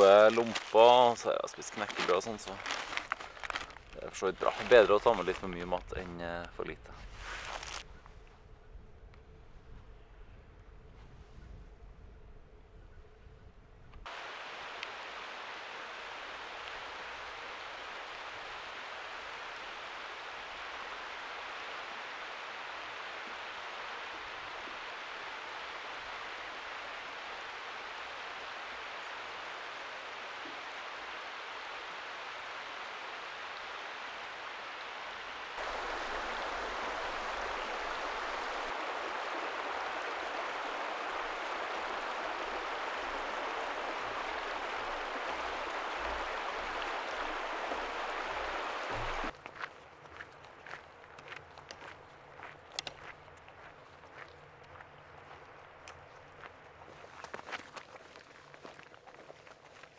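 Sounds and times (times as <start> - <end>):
river water rushing: 0.0 - 1.2, 14.1 - 49.3.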